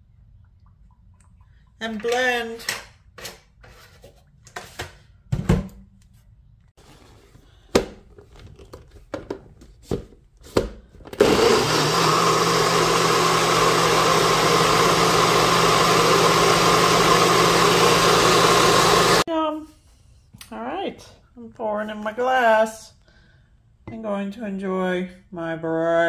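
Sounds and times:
blender motor running: 11.2s - 19.3s.

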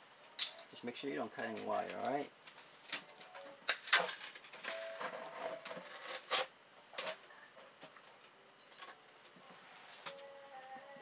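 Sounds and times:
crackling handling noise: 0.2s - 10.3s
packing tape being peeled: 1.4s - 7.2s.

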